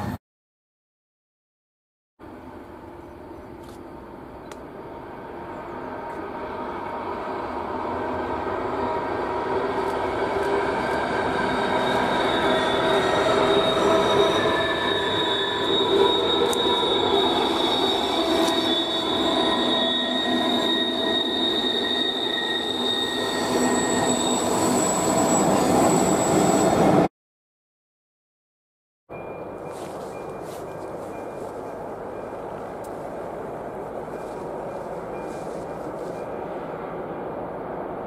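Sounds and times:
passenger train passing: 2.2s - 27.1s, 29.1s - 38.0s
high-pitched wheel squeal: 7.3s - 27.1s.

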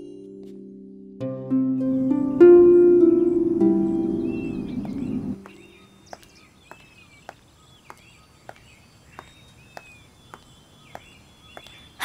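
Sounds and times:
plucked harp music: 0.0s - 5.7s
birds chirping: 1.8s - 12.0s.

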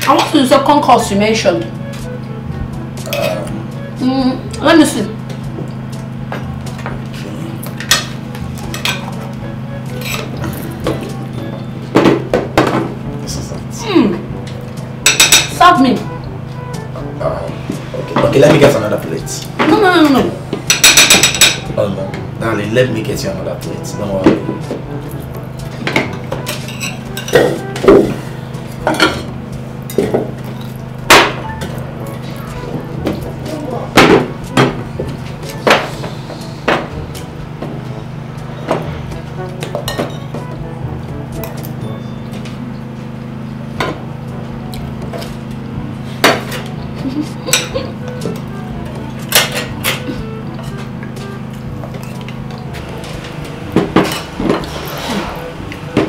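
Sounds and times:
cutlery clinking on plates: 7.7s - 9.2s, 10.0s - 11.1s, 15.0s - 15.6s, 20.7s - 21.7s, 25.8s - 28.2s, 28.8s - 29.3s, 39.6s - 40.4s, 47.5s - 48.4s, 49.3s - 50.9s
low hum: 23.7s - 56.0s.

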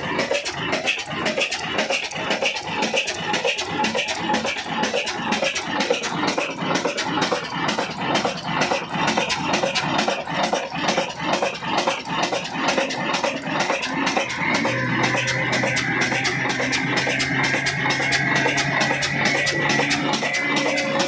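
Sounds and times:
diesel engine knocking: 0.0s - 21.0s
steady music tones: 12.9s - 21.0s.

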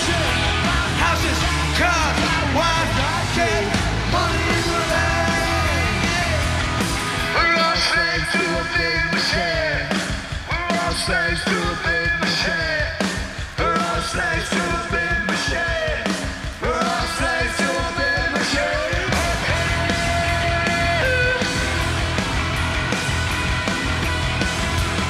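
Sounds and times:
bass guitar: 0.0s - 25.0s
drums: 0.0s - 25.0s
electric guitars: 0.0s - 25.0s
man singing through a megaphone: 7.4s - 9.9s, 10.5s - 13.0s, 13.6s - 21.4s.

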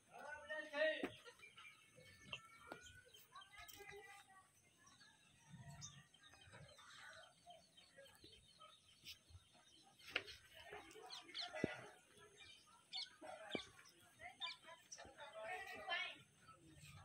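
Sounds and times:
faint birds chirping: 0.0s - 17.0s.

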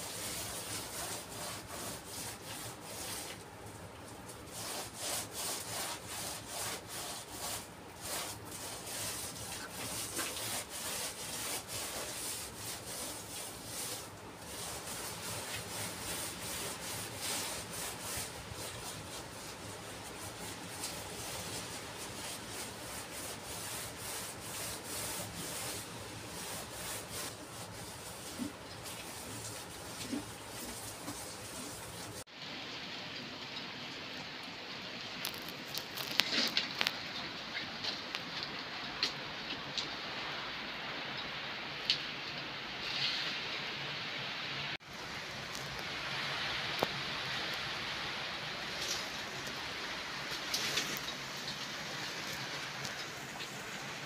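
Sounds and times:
sponge scraping on mortar: 0.0s - 3.4s, 4.5s - 32.2s.

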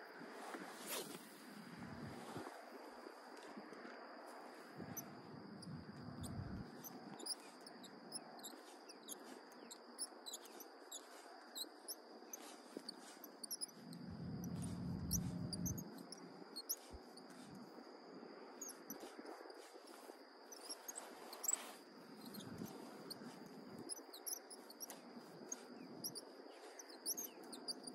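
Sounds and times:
small birds chirping: 4.9s - 17.6s, 18.6s - 27.9s
thin high whine: 13.7s - 17.5s
low rumbles: 13.9s - 16.0s.

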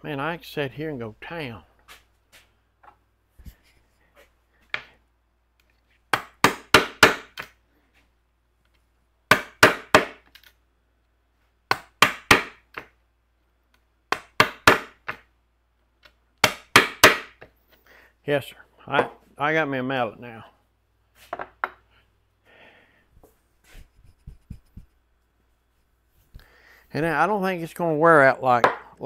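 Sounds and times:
wooden mallet striking chisel: 6.1s - 7.5s, 9.3s - 10.3s, 11.7s - 12.9s, 14.1s - 15.2s, 16.4s - 17.5s.

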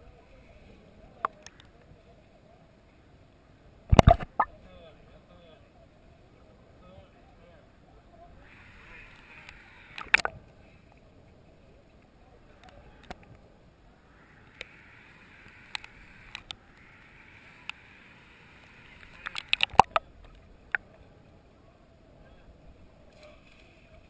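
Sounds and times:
sharp underwater clicks: 3.9s - 4.5s, 9.1s - 10.4s, 14.4s - 14.8s, 15.4s - 17.9s, 18.6s - 20.9s
watery hiss: 8.4s - 10.8s, 14.1s - 20.0s.

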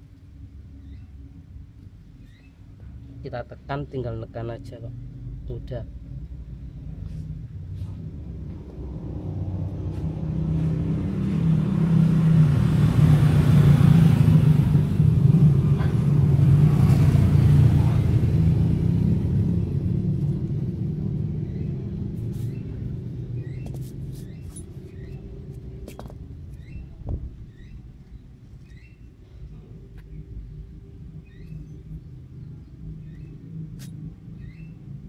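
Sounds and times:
vehicle engine passing: 4.9s - 27.6s.

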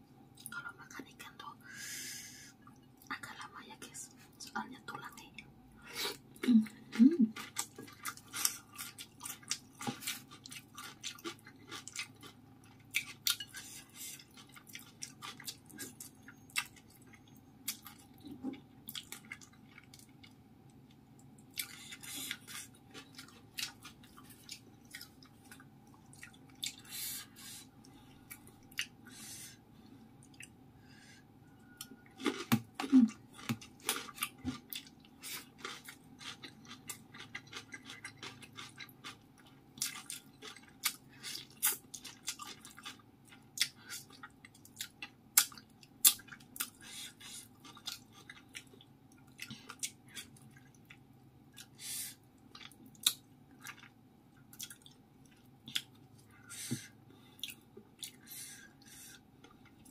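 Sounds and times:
faint steady hum: 0.0s - 59.9s
chewing and lip smacks: 31.8s - 51.8s, 52.4s - 56.3s, 57.4s - 58.2s.

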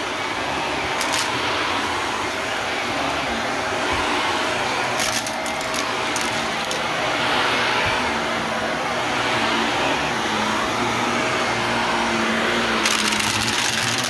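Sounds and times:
vacuum cleaner running: 0.0s - 14.0s
sharp rattling clicks: 1.0s - 1.3s, 12.8s - 14.0s.

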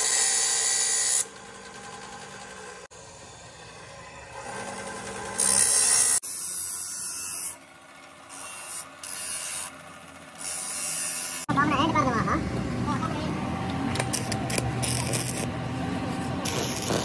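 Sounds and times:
abrasive cut-off saw running: 0.0s - 17.0s
steel grinding on abrasive wheel: 8.3s - 11.5s, 14.1s - 15.6s, 16.2s - 17.0s.

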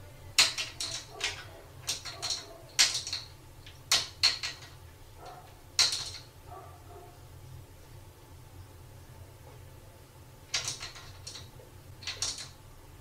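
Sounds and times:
cupboard doors rattling: 0.4s - 3.3s.

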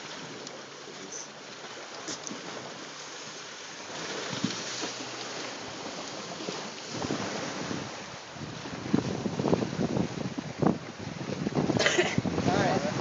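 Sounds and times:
water lapping around a boat: 0.0s - 13.0s
wind rushing: 6.9s - 13.0s.

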